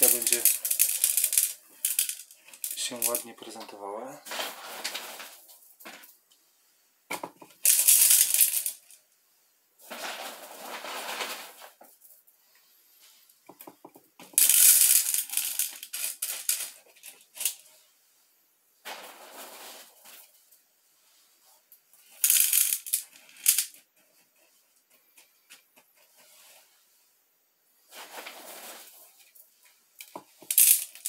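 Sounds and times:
stone chips clattering into glass jar: 0.0s - 3.2s, 7.6s - 8.9s, 14.4s - 16.8s, 22.2s - 23.7s, 30.1s - 31.0s.

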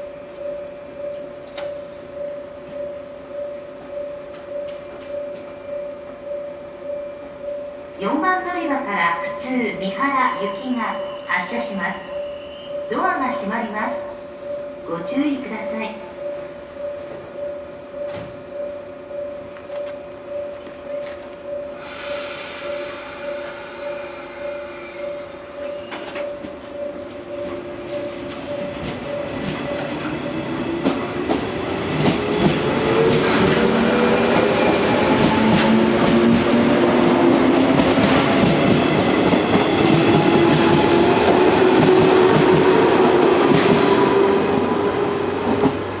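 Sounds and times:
train traction motors whining: 0.0s - 46.0s
pulsing tone: 15.6s - 30.9s
train wheels clacking on rail joints: 27.4s - 44.7s.

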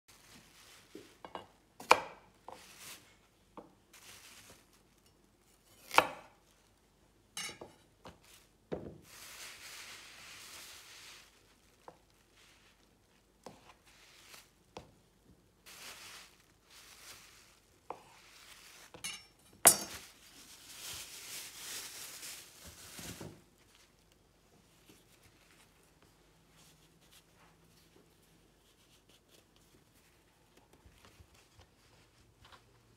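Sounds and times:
knife chopping on wooden board: 1.8s - 2.3s, 5.8s - 6.3s.

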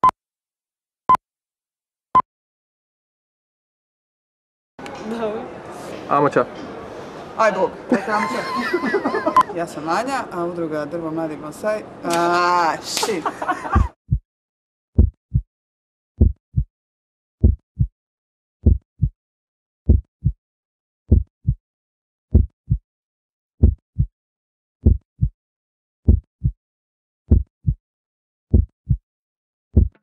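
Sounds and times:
heartbeat double thump: 13.7s - 14.2s, 15.0s - 15.5s, 16.2s - 16.7s, 17.4s - 17.9s, 18.6s - 19.2s, 19.9s - 20.4s, 21.1s - 21.6s, 22.3s - 22.8s, 23.6s - 24.1s, 24.8s - 25.3s, 26.1s - 26.6s, 27.3s - 27.8s, 28.5s - 29.0s, 29.7s - 30.0s.

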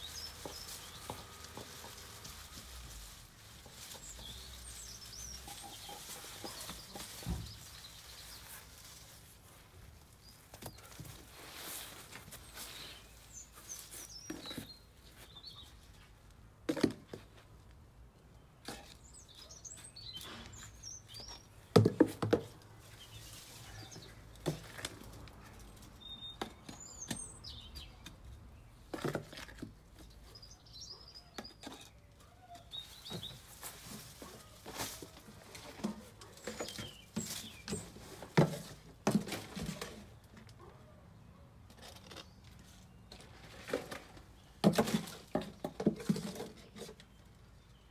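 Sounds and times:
small birds chirping: 0.0s - 16.3s, 18.1s - 21.8s, 22.6s - 38.4s
soil scooping knocks and scrapes: 0.0s - 17.6s, 18.6s - 32.0s, 32.7s - 40.6s, 41.7s - 47.7s.

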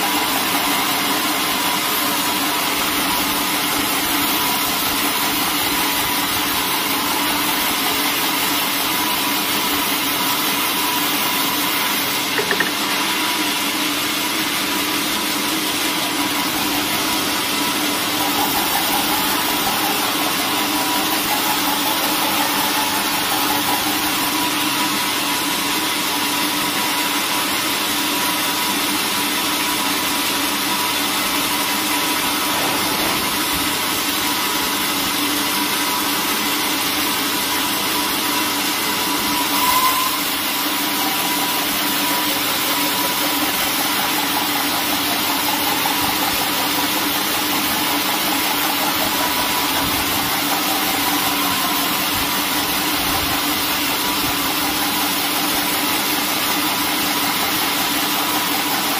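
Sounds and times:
short knock: 12.4s - 12.9s.

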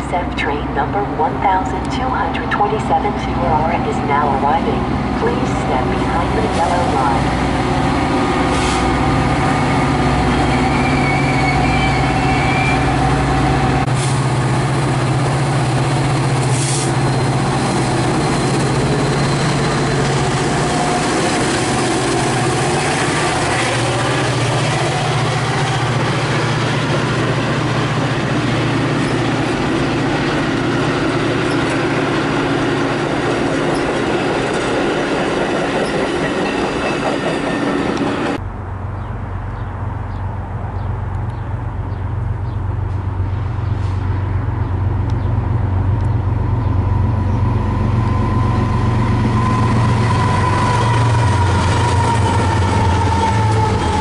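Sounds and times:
diesel locomotive engine droning: 0.0s - 54.0s
train wheels rolling: 6.6s - 38.4s
high wheel squeal: 10.2s - 13.0s.

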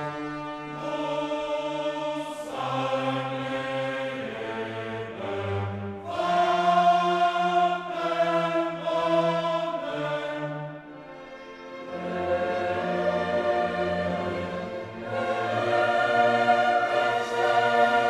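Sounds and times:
choir singing held chords: 0.0s - 18.0s
orchestra playing: 10.8s - 18.0s.

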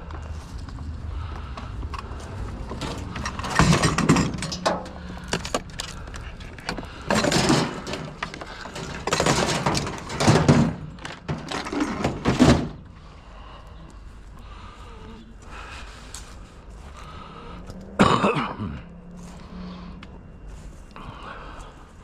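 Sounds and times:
scrap metal clattering in truck bed: 2.6s - 5.9s, 6.5s - 12.9s.

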